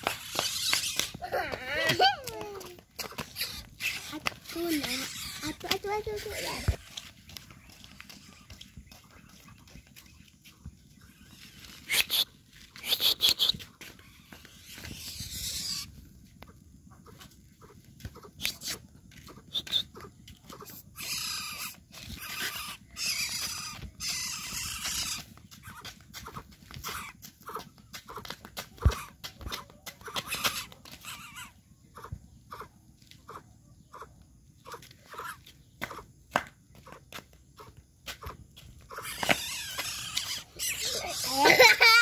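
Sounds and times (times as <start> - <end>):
bird giving harsh hissing calls: 0.0 - 1.2, 3.2 - 4.2, 11.1 - 16.0, 20.9 - 25.8, 30.0 - 31.5, 38.9 - 41.4.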